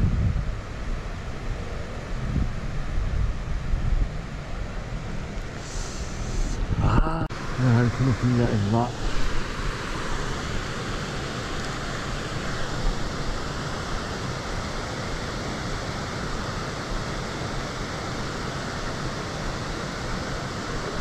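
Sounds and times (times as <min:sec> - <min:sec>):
wind rumble on microphone: 0:00.0 - 0:08.3
water rushing over a weir: 0:04.4 - 0:21.0.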